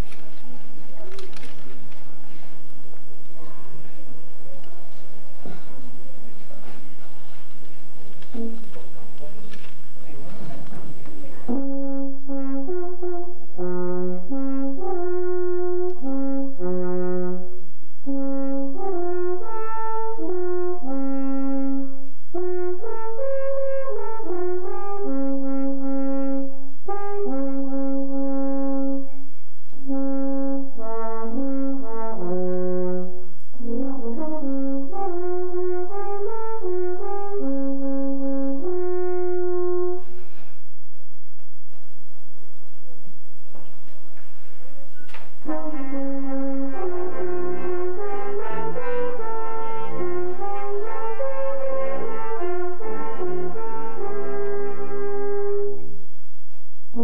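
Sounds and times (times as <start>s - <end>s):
alphorn playing slow melody: 29.9s - 40.4s, 45.4s - 55.9s.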